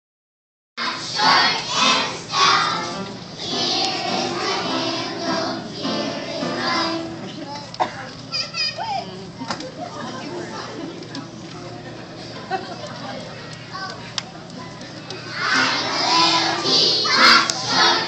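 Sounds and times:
children's choir singing: 0.8 - 7.3, 15.3 - 18.0.

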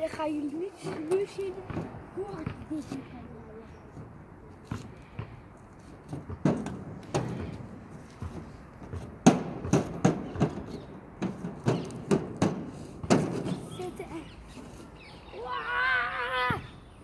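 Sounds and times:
feet thumping on metal deck: 4.0 - 14.6.

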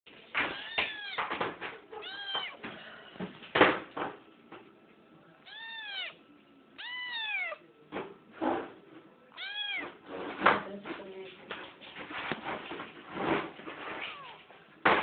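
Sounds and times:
cat meowing: 0.5 - 1.3, 1.9 - 2.6, 5.4 - 6.2, 6.8 - 7.6, 9.3 - 10.0, 14.0 - 14.5.

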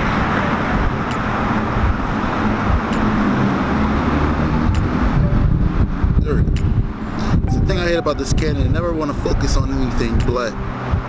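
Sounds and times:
low rumble of motor vehicles: 0.0 - 11.0.

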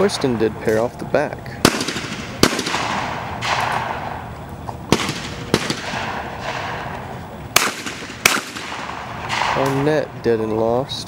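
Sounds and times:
shotgun shots: 1.6 - 4.3, 4.9 - 10.2.

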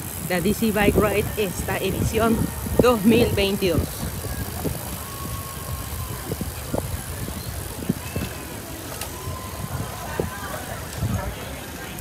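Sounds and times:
bicycle knocks and rattles: 0.0 - 12.0
wind rumbling on microphone: 0.0 - 12.0.

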